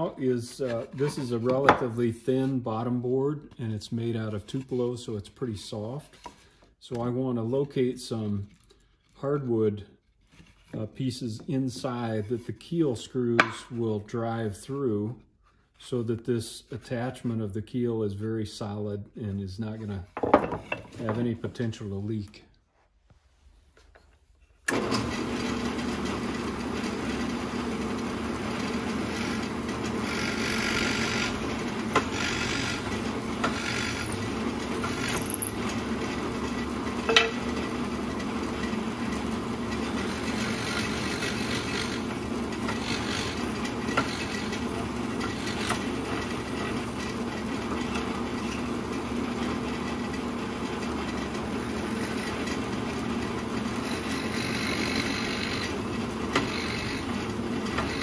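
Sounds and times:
drill press humming: 0:24.6 - 0:58.0
drill bit cutting wood: 0:24.9 - 0:35.6, 0:39.0 - 0:46.9, 0:51.5 - 0:52.7, 0:53.6 - 0:58.0.

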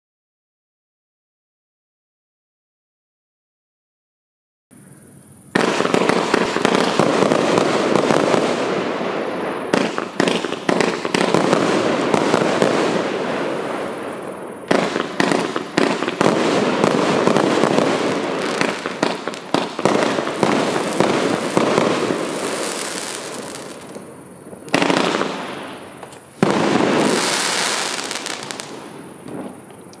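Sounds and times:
fireworks bursting and crackling: 0:05.5 - 0:30.0.

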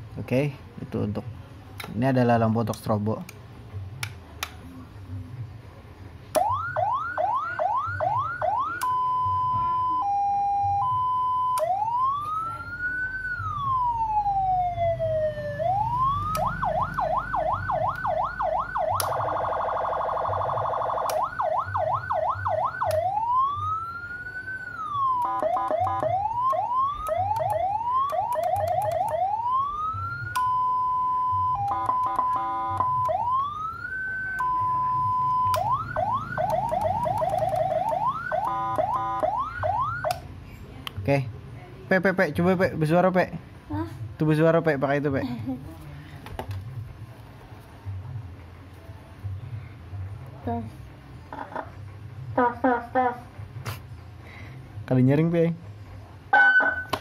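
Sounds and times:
siren hi-lo tone: 0:06.3 - 0:40.2, 0:56.3 - 0:57.0
electronic siren yelp: 0:06.4 - 0:40.2, 0:56.3 - 0:57.0
siren wail: 0:06.4 - 0:40.2, 0:56.3 - 0:57.0
steady siren note: 0:06.4 - 0:40.2, 0:56.3 - 0:57.0
rapid stuttering siren pulses: 0:06.6 - 0:40.1
buzzing horn tone: 0:25.2 - 0:26.2, 0:31.7 - 0:33.0, 0:38.4 - 0:39.3.

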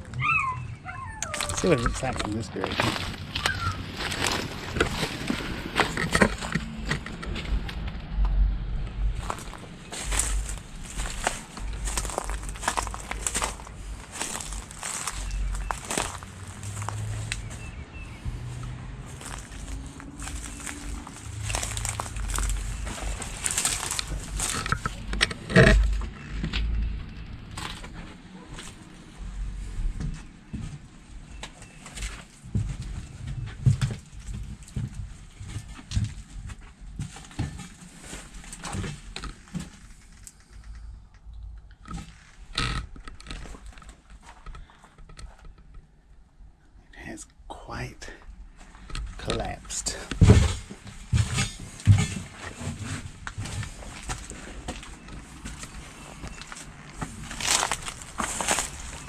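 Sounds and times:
footsteps crunching dry leaves: 0:01.4 - 0:06.5, 0:09.2 - 0:17.7, 0:18.4 - 0:24.6, 0:53.4 - 0:59.0
low handling noise rumble: 0:02.2 - 0:27.5.

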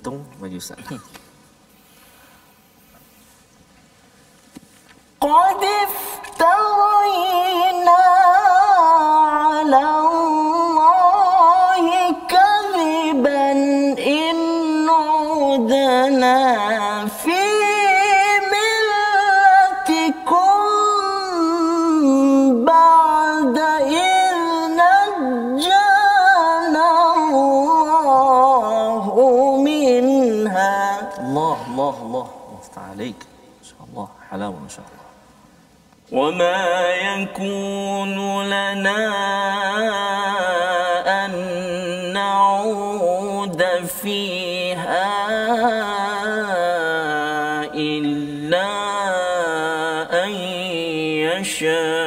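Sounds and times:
man breathing: 0:01.7 - 0:02.8
man reciting melodically: 0:05.2 - 0:35.3, 0:36.0 - 0:52.0.

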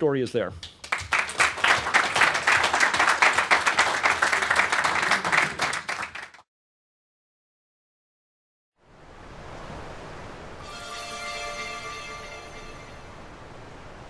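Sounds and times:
audience applauding: 0:00.7 - 0:06.4.

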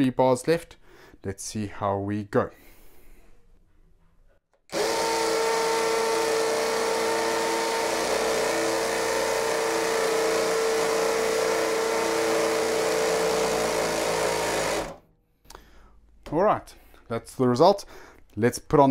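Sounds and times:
hammer drill boring into brick: 0:04.7 - 0:15.0.

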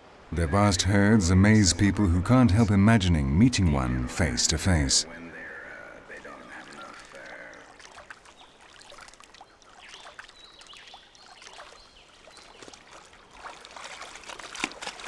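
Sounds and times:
water trickling and lapping: 0:00.0 - 0:15.0
small splashes: 0:06.0 - 0:15.0.

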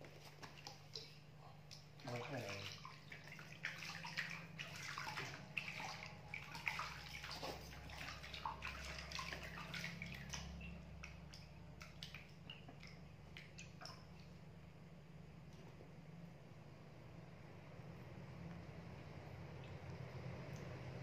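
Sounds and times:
water splashing in a plastic tub: 0:00.0 - 0:14.8
steady low hum: 0:00.0 - 0:21.0.

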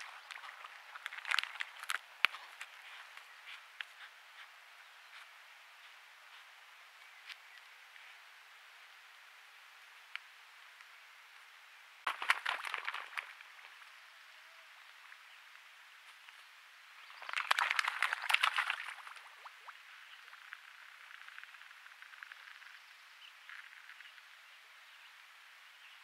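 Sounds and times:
crackling rustle: 0:00.0 - 0:08.3, 0:12.0 - 0:24.4
microphone hiss: 0:00.0 - 0:26.0.

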